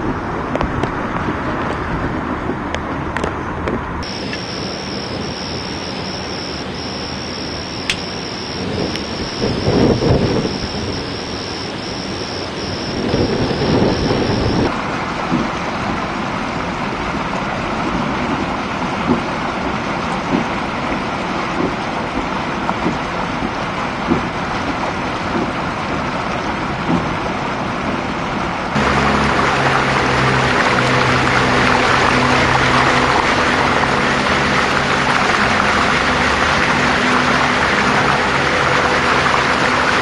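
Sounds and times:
rain: 0:00.0 - 0:40.0
wind: 0:00.0 - 0:40.0
vehicle engine humming: 0:04.0 - 0:14.7, 0:28.8 - 0:40.0.

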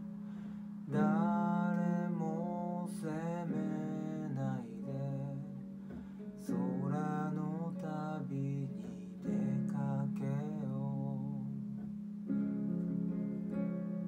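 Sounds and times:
man singing: 0:00.9 - 0:05.7, 0:06.4 - 0:11.6.

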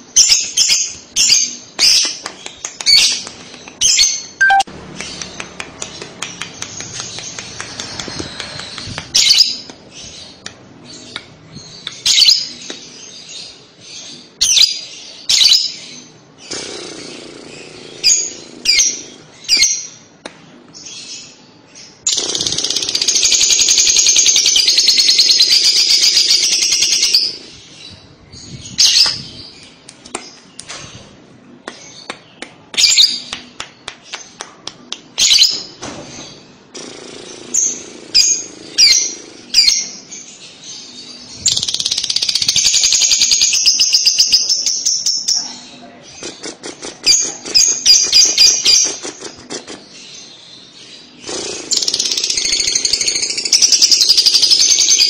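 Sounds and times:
lovebird chirps: 0:02.9 - 0:10.2
bird chattering trill: 0:03.8 - 0:09.7, 0:22.1 - 0:27.4.

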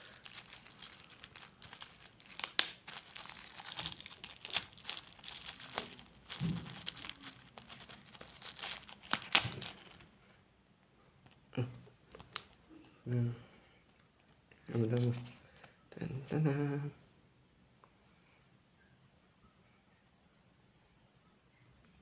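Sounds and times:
plastic sachet crinkling: 0:00.0 - 0:10.1.

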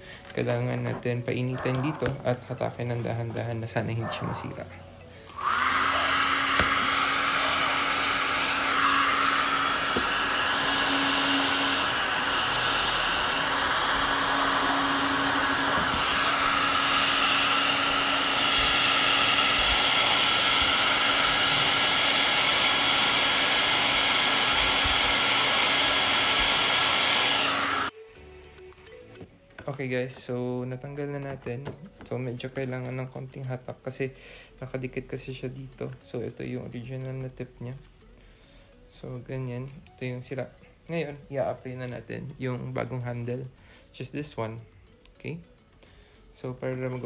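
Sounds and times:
hair dryer running: 0:05.3 - 0:28.0.

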